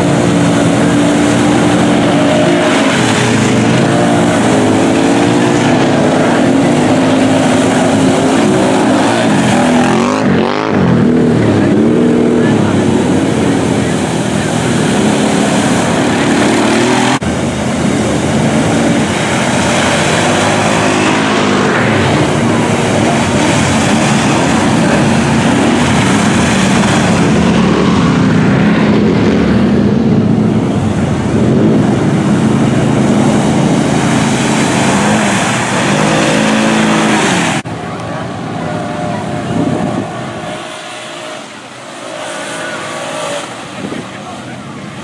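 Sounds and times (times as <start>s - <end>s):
atv engines revving: 0.0s - 45.0s
utv engine running: 0.0s - 45.0s.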